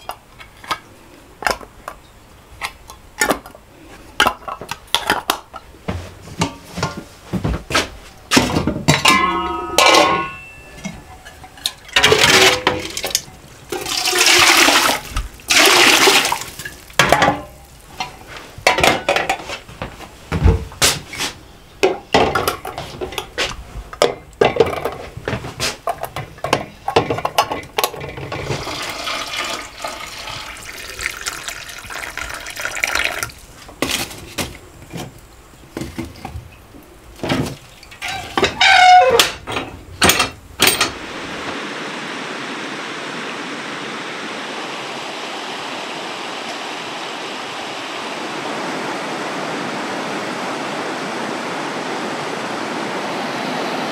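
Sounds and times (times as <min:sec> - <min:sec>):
glass jars and lids clinking: 0:08.9 - 0:14.4
liquid pouring into glass jars: 0:12.0 - 0:17.0, 0:28.4 - 0:33.5.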